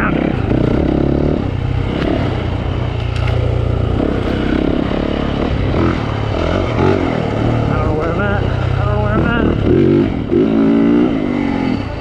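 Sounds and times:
dirt bike engine: 0.0 - 12.0.

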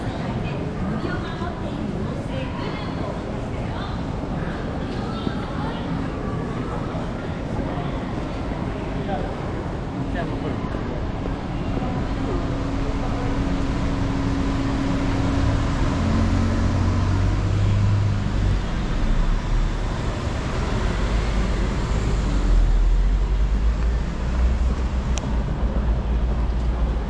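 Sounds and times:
street traffic: 0.0 - 27.0
engine hum: 9.4 - 27.0.

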